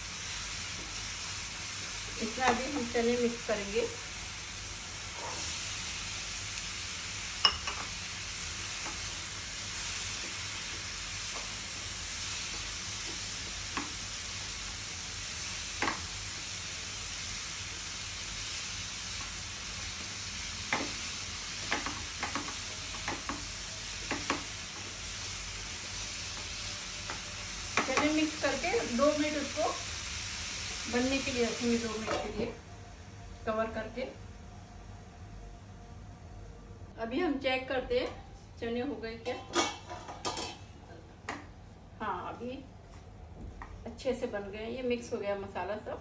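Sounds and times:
food sizzling in a frying pan: 0:00.0 - 0:33.0.

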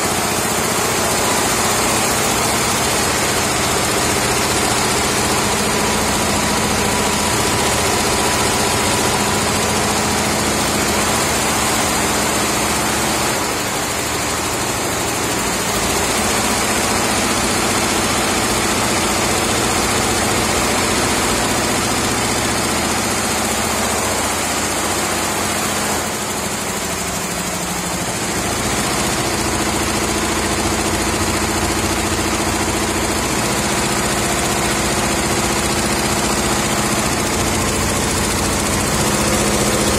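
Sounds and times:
embroidery machine running: 0:00.0 - 0:39.9.

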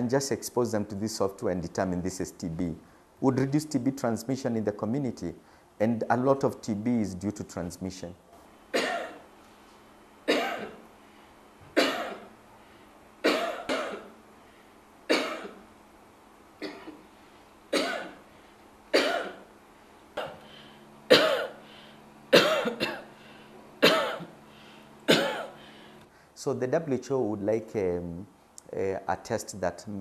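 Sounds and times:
faint steady hum: 0:00.0 - 0:30.0
person coughing: 0:08.7 - 0:09.2, 0:10.3 - 0:10.8, 0:11.8 - 0:12.3, 0:13.2 - 0:14.2, 0:15.1 - 0:15.6, 0:16.6 - 0:17.1, 0:17.7 - 0:18.2, 0:18.9 - 0:19.5, 0:20.2 - 0:21.6, 0:22.3 - 0:23.2, 0:23.8 - 0:24.4, 0:25.1 - 0:25.8.

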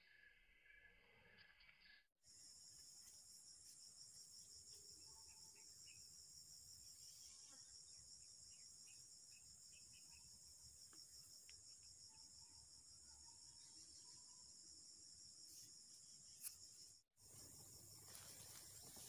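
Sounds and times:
crickets trilling: 0:16.4 - 0:19.0.

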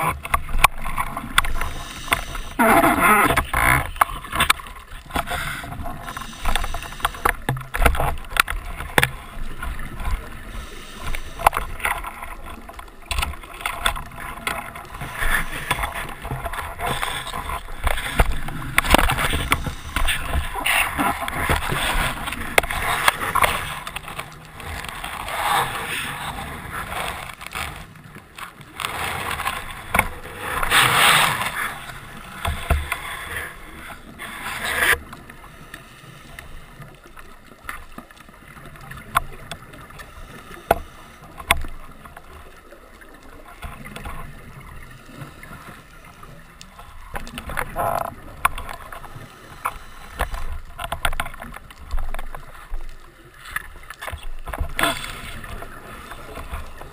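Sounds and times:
underwater hiss: 0:01.5 - 0:02.6, 0:05.4 - 0:07.3, 0:10.4 - 0:11.6.

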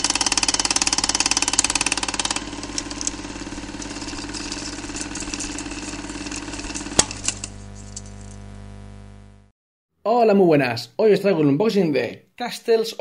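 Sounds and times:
steady low hum: 0:01.7 - 0:09.5.

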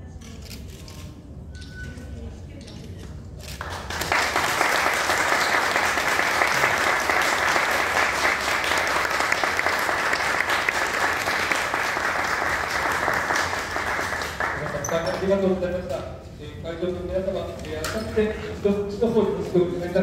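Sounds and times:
audience applauding: 0:03.6 - 0:15.0.

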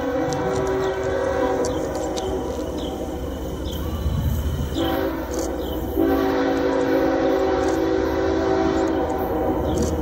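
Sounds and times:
locomotive air horn blasts: 0:00.0 - 0:02.2, 0:03.9 - 0:09.5
low rumble of train: 0:00.0 - 0:10.0.

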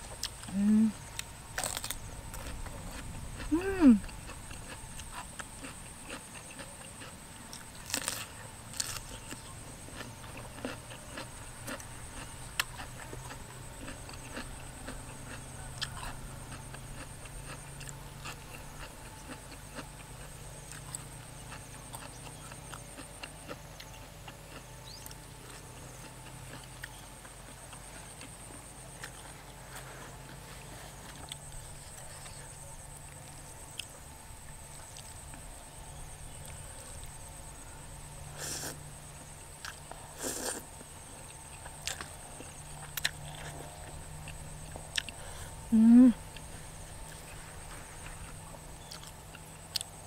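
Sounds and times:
person chewing vegetables: 0:00.0 - 0:37.6, 0:38.2 - 0:50.0
sharp crunches: 0:01.6 - 0:03.7, 0:04.3 - 0:16.2.

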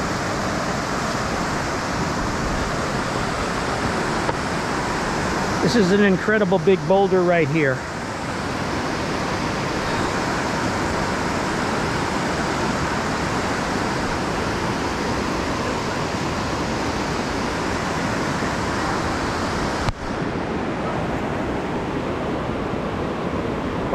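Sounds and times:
whitewater rapids rushing: 0:00.0 - 0:23.9.

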